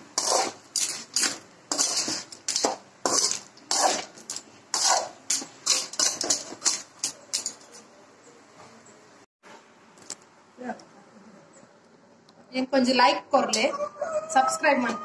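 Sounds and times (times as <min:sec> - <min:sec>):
spoon scraping and stirring clams: 0:00.0 - 0:08.0.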